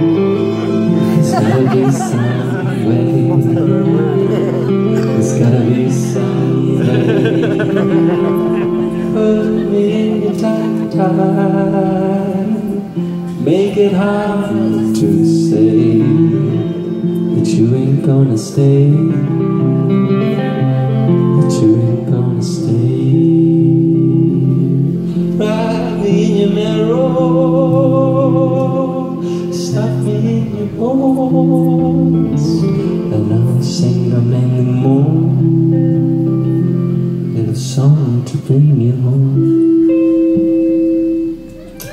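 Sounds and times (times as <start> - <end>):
live band playing: 0.0 - 17.8, 39.5 - 41.9
man singing: 0.0 - 36.3, 37.0 - 40.5
electric guitar: 0.0 - 41.9.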